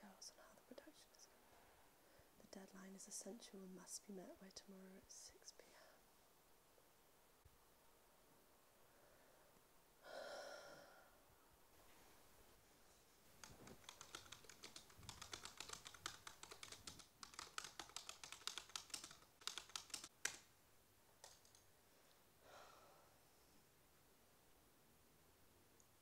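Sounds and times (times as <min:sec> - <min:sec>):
typing on keyboard: 0:13.4 - 0:20.5, 0:21.2 - 0:21.6.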